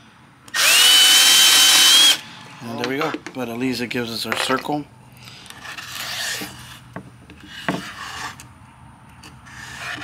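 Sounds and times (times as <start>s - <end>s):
pencil scratching on board: 9.5s - 10.0s.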